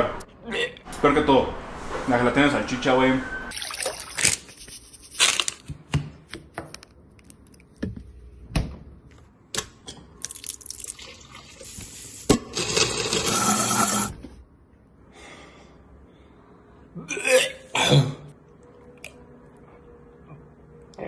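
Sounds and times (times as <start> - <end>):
countertop blender running: 12.6 - 14.1.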